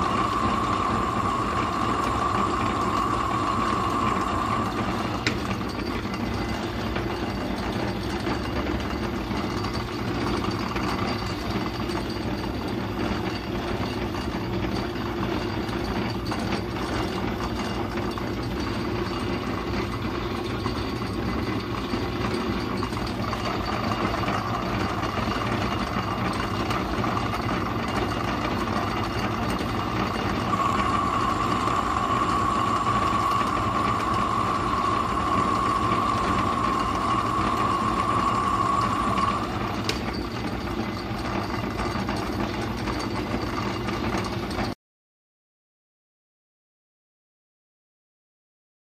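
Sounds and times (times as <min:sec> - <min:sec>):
high whine: 0:00.0 - 0:08.5, 0:17.6 - 0:41.0
metal lathe whirring: 0:00.0 - 0:44.8.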